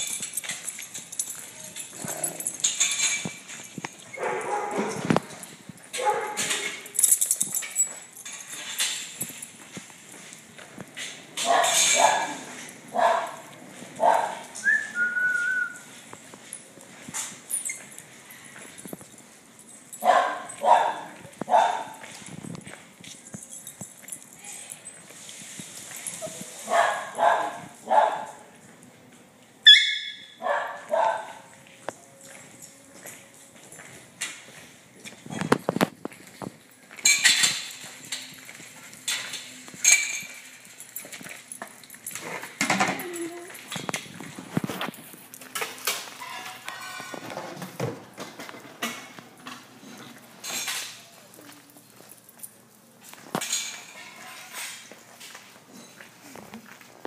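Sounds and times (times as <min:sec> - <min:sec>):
small dogs barking: 0:04.2 - 0:05.1, 0:06.0 - 0:06.7, 0:11.4 - 0:14.6, 0:20.0 - 0:22.0, 0:26.7 - 0:28.5, 0:29.7 - 0:31.5.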